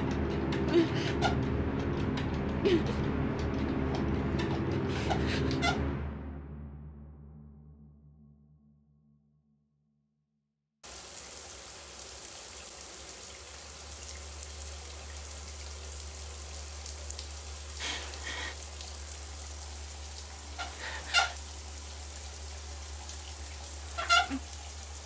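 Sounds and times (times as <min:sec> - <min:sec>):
shower water running: 0:10.8 - 0:25.0.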